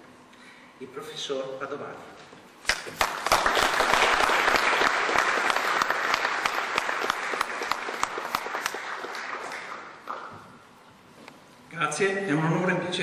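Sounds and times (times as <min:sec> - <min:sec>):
audience applauding: 0:02.7 - 0:10.4.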